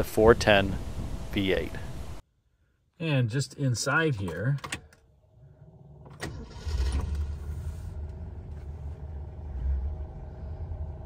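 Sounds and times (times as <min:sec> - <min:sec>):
car engine starting and idling: 0:05.6 - 0:11.0.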